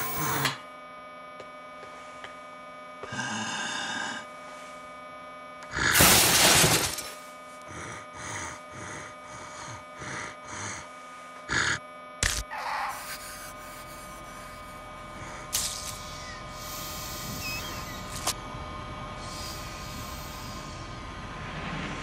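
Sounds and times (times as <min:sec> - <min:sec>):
low drone: 0:05.6 - 0:22.0.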